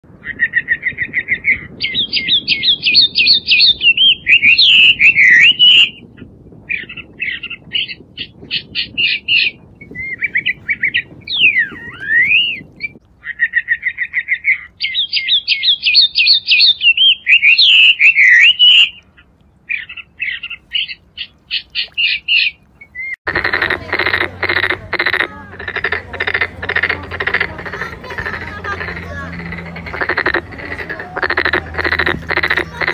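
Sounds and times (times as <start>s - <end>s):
birds chirping and trilling: 0.2s - 23.6s, 24.5s - 32.9s
frogs croaking: 23.3s - 32.9s.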